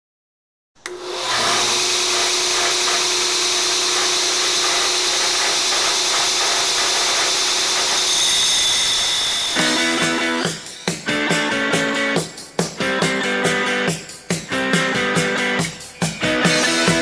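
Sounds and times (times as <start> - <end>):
belt grinder hissing: 0.9 - 10.9.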